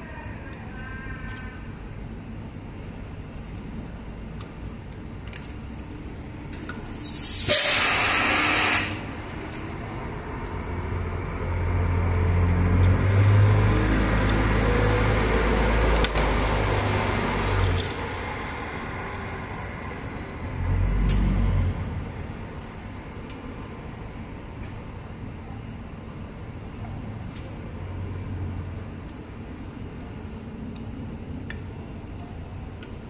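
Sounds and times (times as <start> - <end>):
heavy vehicle engine rumbling: 1.5 - 32.8.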